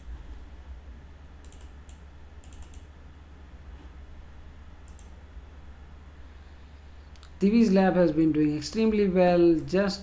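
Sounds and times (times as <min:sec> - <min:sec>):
steady low hum: 0:00.0 - 0:10.0
keyboard typing: 0:01.4 - 0:02.9.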